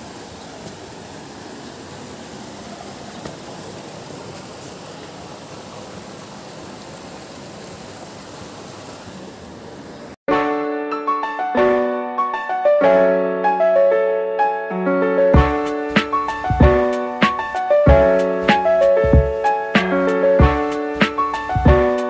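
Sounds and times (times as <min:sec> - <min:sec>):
river water rushing over boulders: 0:00.0 - 0:10.2.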